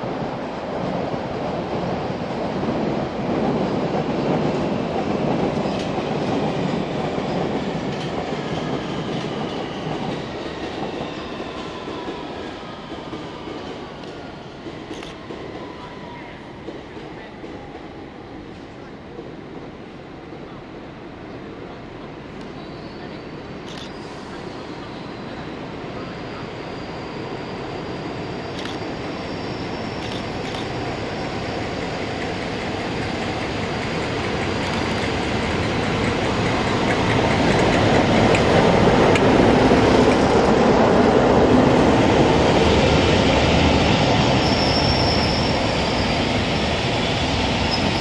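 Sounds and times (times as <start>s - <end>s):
diesel locomotive engine: 0.0s - 48.0s
rail noise: 0.0s - 48.0s
high wheel squeal: 23.9s - 31.7s, 43.1s - 48.0s.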